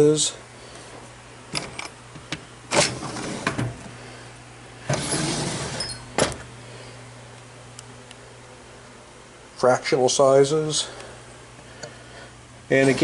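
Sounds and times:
drawer sliding on runners: 2.7 - 3.9, 4.8 - 6.4
metal drawer clunking shut: 4.9 - 6.4.

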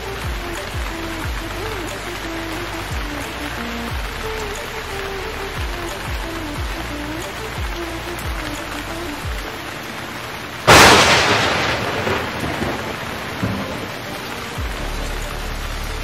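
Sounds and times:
heavy rain on tarpaulin: 0.0 - 16.0
sudden loud crash: 10.7 - 13.9.

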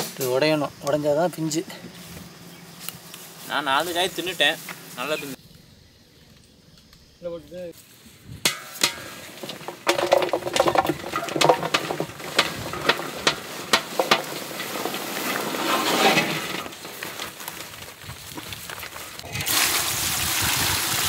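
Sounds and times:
okra pods pouring into metal basin: 9.4 - 17.4, 19.2 - 21.0.

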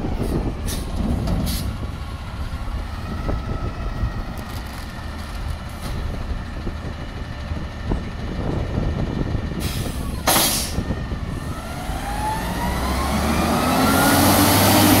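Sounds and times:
truck engine pulling away: 0.0 - 15.0
air brakes hissing: 0.2 - 1.8, 9.6 - 10.9.

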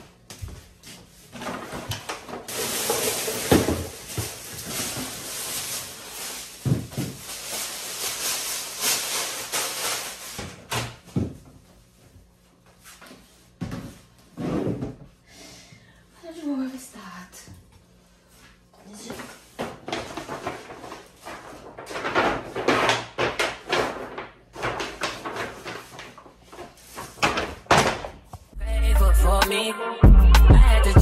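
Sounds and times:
plastic bag rustling: 1.0 - 11.0, 19.0 - 28.2.

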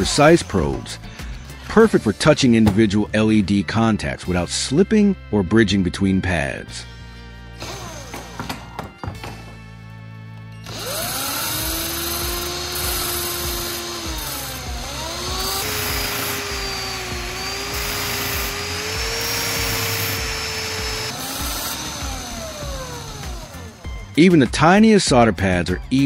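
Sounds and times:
cordless drill running: 7.6 - 8.5, 10.6 - 24.2
metal strip grinding on disc: 10.7 - 24.0.

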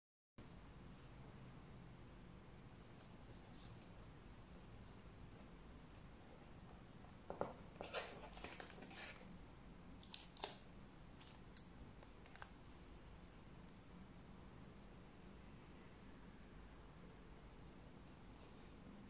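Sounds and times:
plastic wrap crinkling: 10.0 - 12.6.

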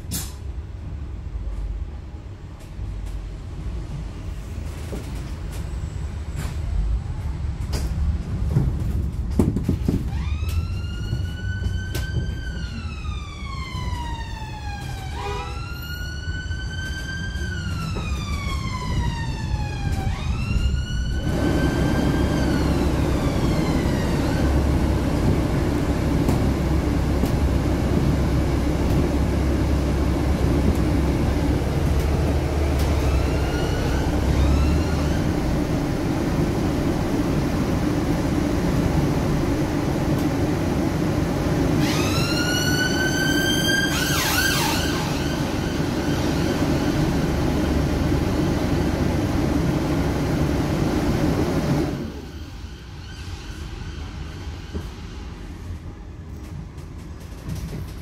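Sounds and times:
bus and street traffic rumble: 0.0 - 58.0
emergency siren wailing: 10.1 - 27.7.

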